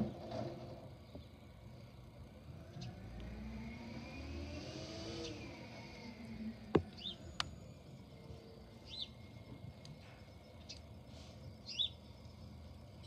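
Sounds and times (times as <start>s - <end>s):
garbage truck engine revving: 2.2s - 7.4s
bird chirps: 6.8s - 9.4s, 10.0s - 10.9s, 11.6s - 12.1s.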